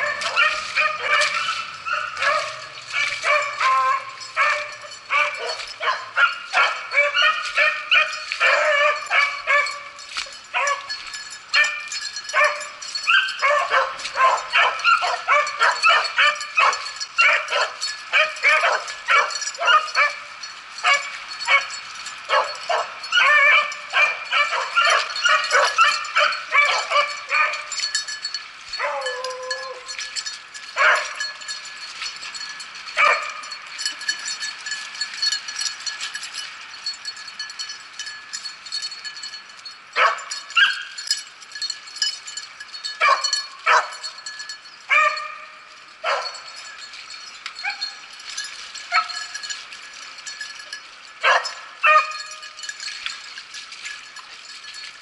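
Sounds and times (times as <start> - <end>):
beagles baying: 0.0 - 28.0, 28.8 - 31.5, 43.0 - 44.1.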